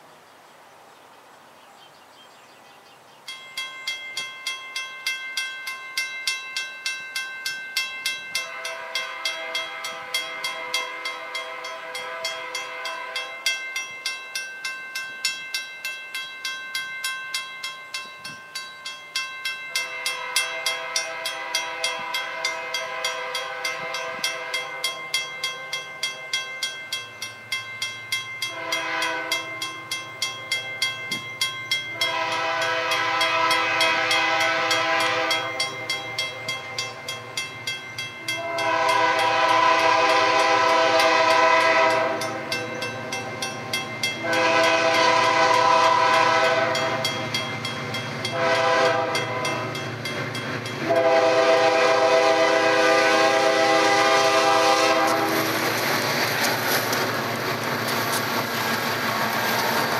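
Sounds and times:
train horn blasts: 8.3s - 13.5s, 19.8s - 25.7s, 28.4s - 29.6s, 31.9s - 37.2s, 38.2s - 43.4s, 44.1s - 47.4s, 48.2s - 49.8s, 50.8s - 56.0s.

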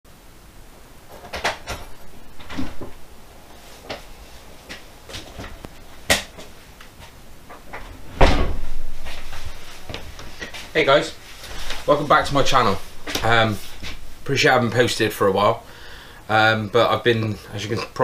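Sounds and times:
scattered knocks and clicks: 1.2s - 3.0s
thump with low rumble: 7.7s - 10.0s.

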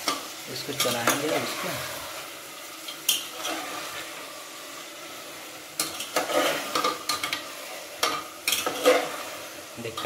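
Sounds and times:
meat and onions sizzling: 0.0s - 10.0s
spoon scraping a pan: 2.9s - 4.1s, 5.8s - 10.0s.

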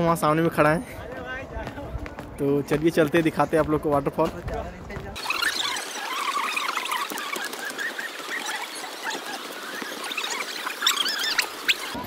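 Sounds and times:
small birds chirping: 5.2s - 12.0s.

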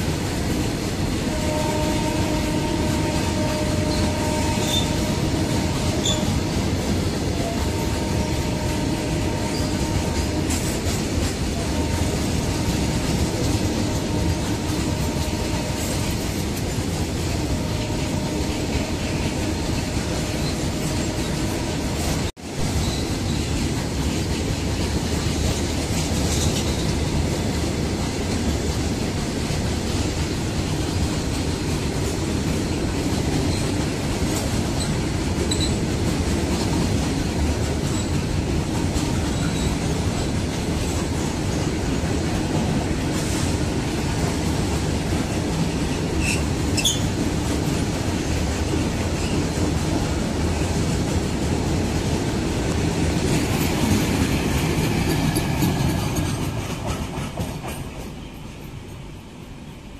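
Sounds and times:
freight wagons rumbling over rails: 0.0s - 59.9s
high wheel squeals: 34.8s - 35.8s, 46.0s - 47.2s.

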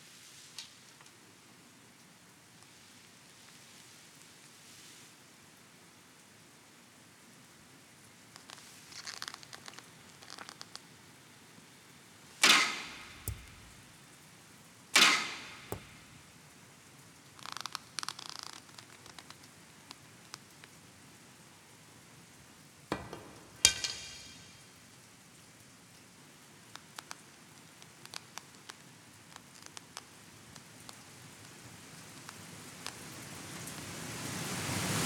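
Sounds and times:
faint scattered ticks: 8.3s - 11.0s, 26.7s - 33.9s
bowstring snap with ringing: 12.4s - 13.9s, 15.0s - 16.2s.

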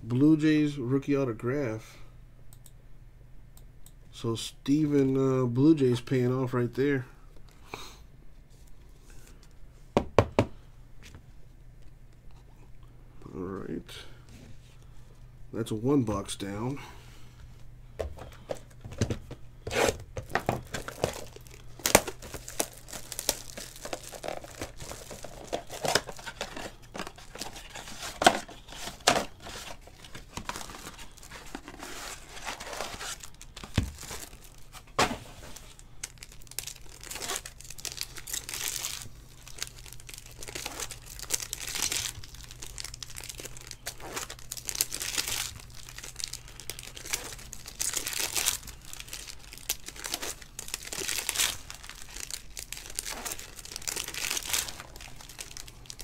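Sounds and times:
foil wrappers tearing and crinkling: 19.6s - 56.0s.

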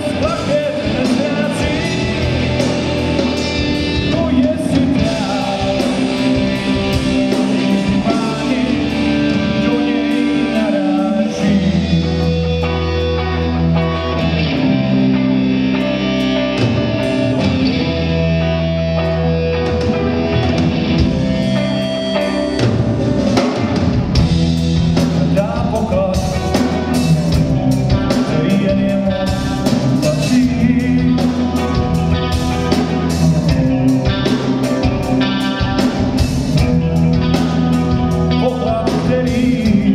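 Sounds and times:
bass guitar: 0.0s - 39.9s
drum kit: 0.0s - 39.9s
electric guitars: 0.0s - 39.9s.

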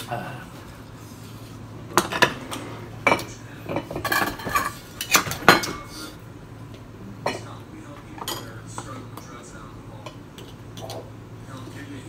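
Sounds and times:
cutlery and shells clinking on plates: 3.1s - 5.9s.

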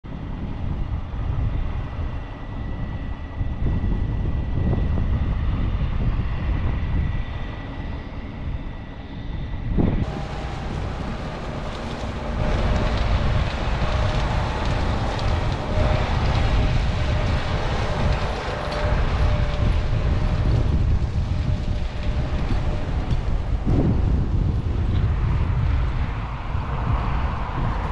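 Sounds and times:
thin steady whine: 9.8s - 24.3s
harvest machinery rumbling: 9.8s - 27.9s.

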